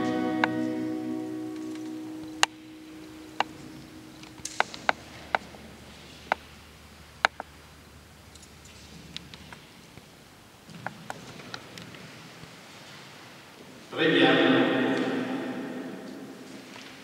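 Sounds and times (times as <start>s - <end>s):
music chord: 0.0s - 4.4s
sharp clicks and light knocks: 3.4s - 5.6s.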